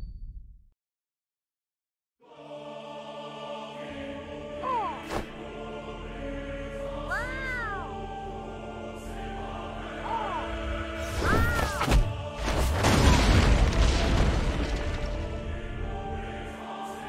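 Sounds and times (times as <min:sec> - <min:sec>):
dramatic background music: 0:02.3 - 0:17.0
boom and crash of breaking rock: 0:11.9 - 0:15.6.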